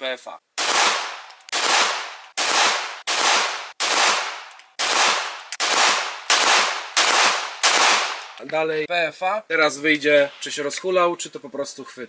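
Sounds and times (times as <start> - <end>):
pistol shots with echo: 0.6 - 8.4.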